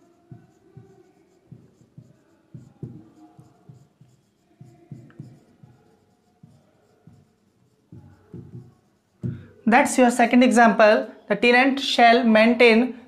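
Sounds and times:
marker writing on whiteboard: 0.0s - 10.2s.

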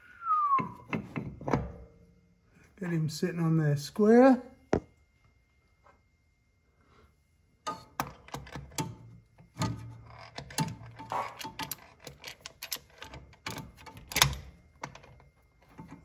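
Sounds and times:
metal clicks and clinks: 7.7s - 16.0s.

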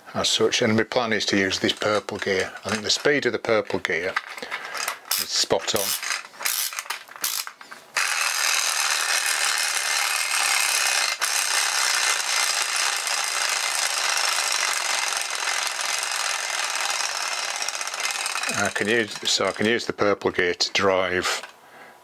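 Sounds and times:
ratchet clicks: 1.6s - 3.3s, 4.2s - 19.8s
clockwork gear train whirring: 5.1s - 19.8s.

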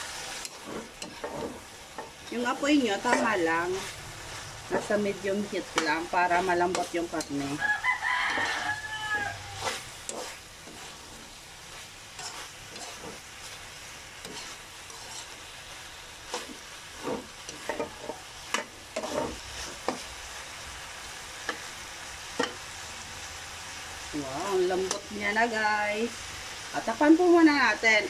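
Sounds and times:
meat sizzling in a frying pan: 0.0s - 28.0s
metal spoon scraping a pan: 0.1s - 20.2s, 22.3s - 22.6s, 24.8s - 25.2s.

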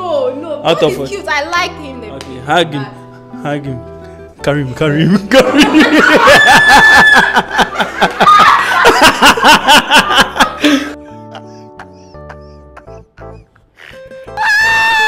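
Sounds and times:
loud laughter: 5.3s - 15.0s.

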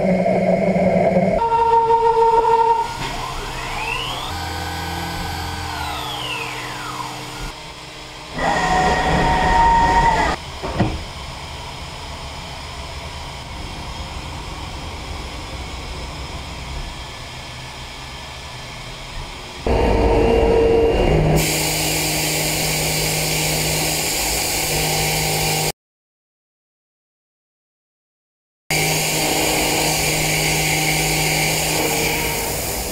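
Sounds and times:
machine spindle whine: 0.0s - 22.2s, 28.7s - 32.9s
steady machine hum: 0.0s - 23.2s.

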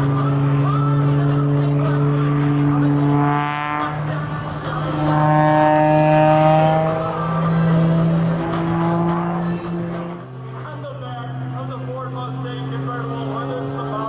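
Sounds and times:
higher whining note: 0.0s - 10.6s
propeller plane engine droning: 0.0s - 14.0s.

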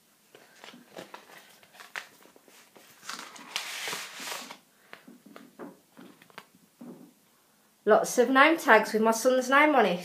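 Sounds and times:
paper rustling: 0.3s - 6.5s.

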